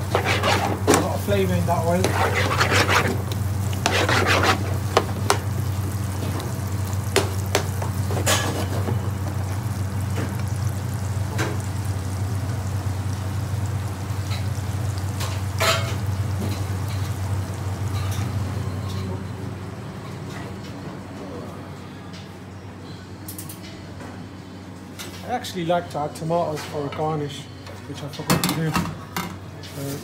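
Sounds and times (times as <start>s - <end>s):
metal spoon scraping a pan: 0.0s - 5.1s, 8.2s - 9.0s
onions sizzling in oil: 2.8s - 18.0s.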